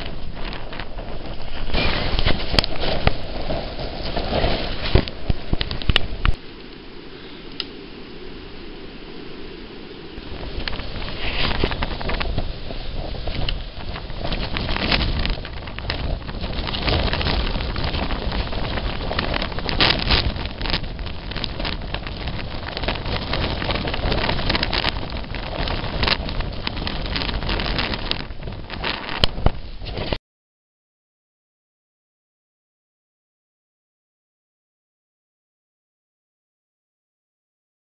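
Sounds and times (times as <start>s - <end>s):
wind buffeting microphone: 0.0s - 30.2s.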